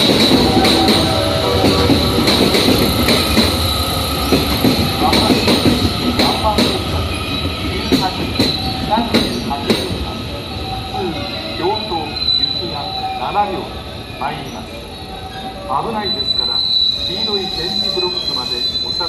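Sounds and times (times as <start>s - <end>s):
high wheel squeal: 0.0s - 5.9s, 7.2s - 9.5s, 10.5s - 19.0s
train wheels clicking over joints: 0.0s - 10.1s
low train rumble: 0.0s - 19.0s.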